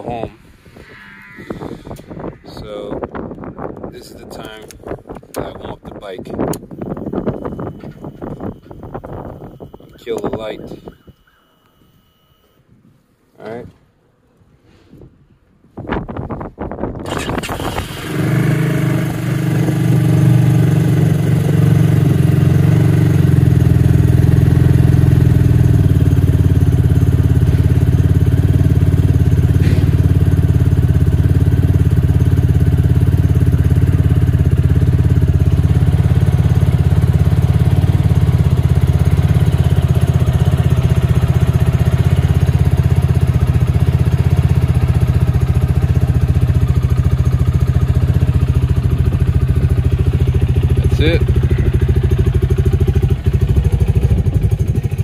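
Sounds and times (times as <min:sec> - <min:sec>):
motorcycle engine idling: 0:19.0 - 0:55.0.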